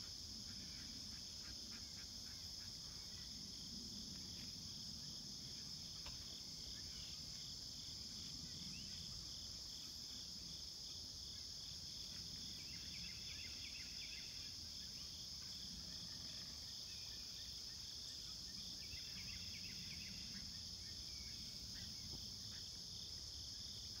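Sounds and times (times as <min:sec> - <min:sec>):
cicadas droning: 0:00.0 - 0:24.0.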